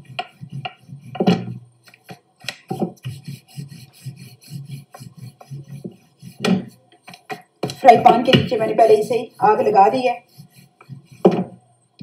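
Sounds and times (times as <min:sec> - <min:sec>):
rolling pin knocking countertop: 0:00.0 - 0:03.5, 0:04.7 - 0:08.8, 0:10.8 - 0:11.6
rolling pin rubbing dough: 0:00.0 - 0:11.6.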